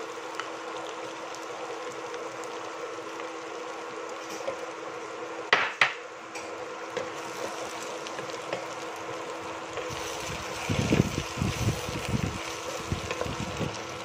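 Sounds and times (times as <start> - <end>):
steady hum: 0.0 - 14.0
wooden spoon stirring vegetables in pot: 6.9 - 14.0.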